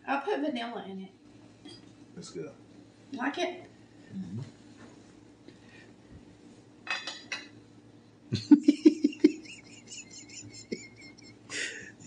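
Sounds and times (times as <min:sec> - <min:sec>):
forks clinking on plates: 0:06.9 - 0:07.5.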